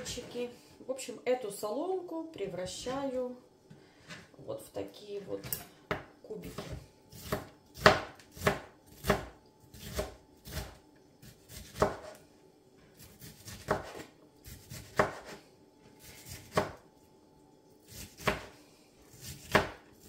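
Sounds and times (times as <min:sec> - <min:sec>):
knife chopping on cutting board: 0:05.5 - 0:12.2, 0:13.0 - 0:15.4, 0:16.0 - 0:16.8, 0:17.9 - 0:20.0.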